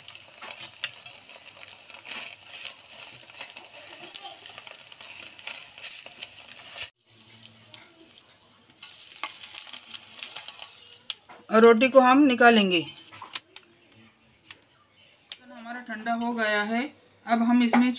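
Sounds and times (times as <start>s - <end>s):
flatbread sizzling in oil: 0.0s - 13.9s
metal spatula scraping and tapping: 0.4s - 6.9s.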